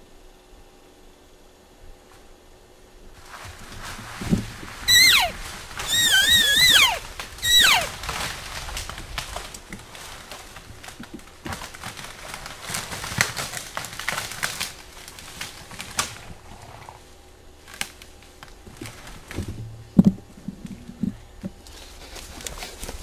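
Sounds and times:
twigs snapping: 5.4 - 16.2, 17.6 - 19.4.

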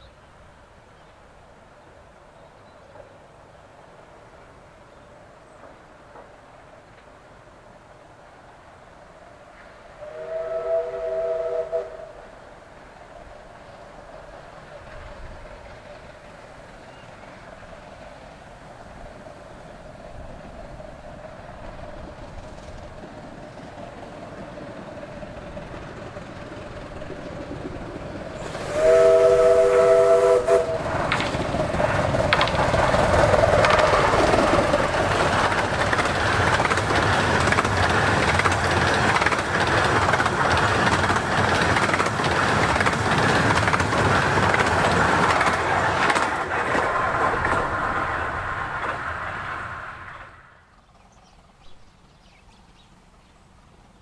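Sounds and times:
train clattering over rails: 5.4 - 7.2, 13.2 - 52.9
steam locomotive chord whistle: 10.0 - 12.4, 28.4 - 31.0.

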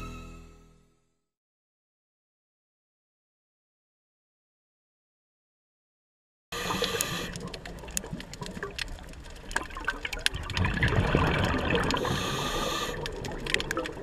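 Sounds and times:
underwater gurgling bubbles: 6.6 - 14.0
loud hissing: 12.0 - 13.0.

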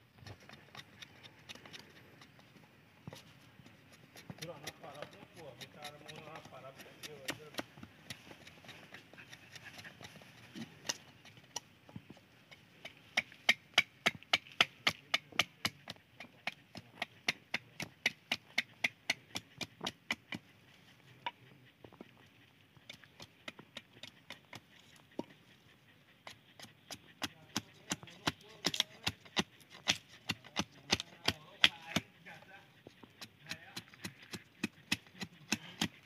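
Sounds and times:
blade chopping wood: 26.9 - 32.1, 33.2 - 36.0.

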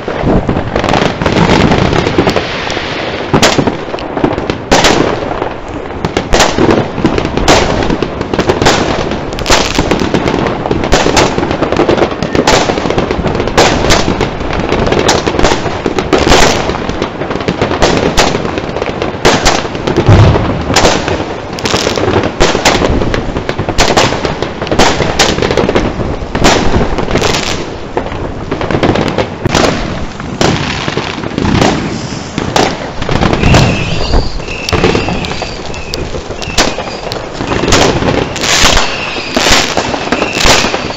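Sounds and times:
fireworks bangs and crackles: 0.0 - 40.9
heavy firework thumps: 19.2 - 40.9.

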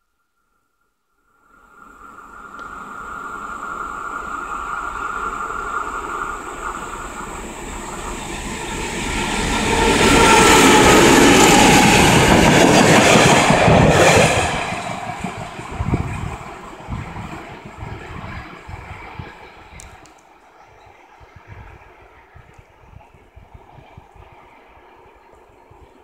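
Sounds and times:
diesel locomotive passing: 1.4 - 26.0
train wheels on rails: 1.6 - 26.0.

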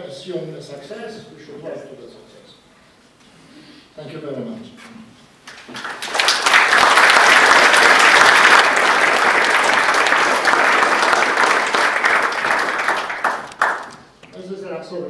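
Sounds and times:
audience applauding: 5.5 - 14.2.

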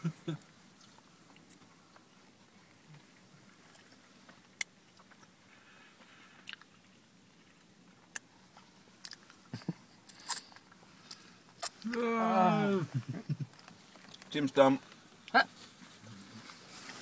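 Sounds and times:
chewing crispy food: 0.4 - 12.0, 13.5 - 15.4
sharp clicks and crunches: 13.4 - 14.4.

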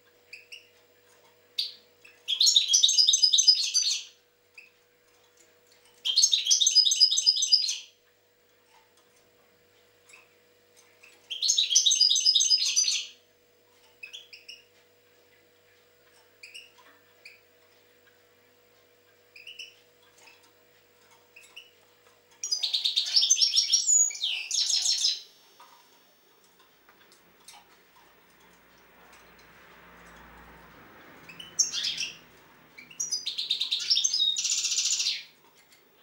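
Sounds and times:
goldfinch twittering song: 1.6 - 4.7, 6.0 - 7.9, 11.0 - 13.2, 19.3 - 19.8, 22.4 - 25.8, 31.2 - 35.4.

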